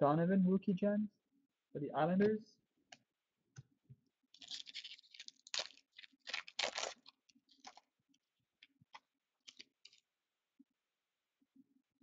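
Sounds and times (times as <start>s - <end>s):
card pack wrapper crinkling and tearing: 4.4s - 7.9s, 8.6s - 10.1s.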